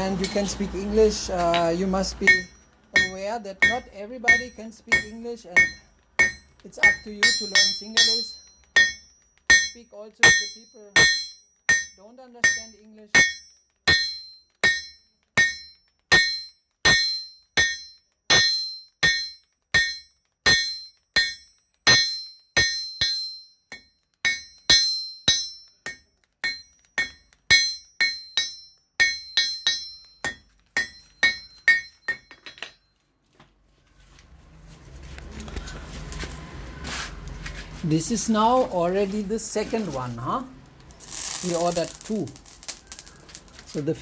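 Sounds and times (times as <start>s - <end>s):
hammer striking iron on anvil: 1.4s - 32.8s.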